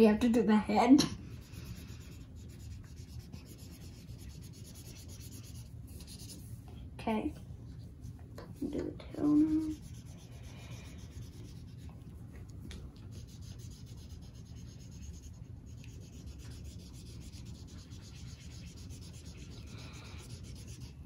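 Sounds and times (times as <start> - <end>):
marker scrubbing on paper: 1.3 - 6.5, 8.4 - 12.0, 13.0 - 21.0.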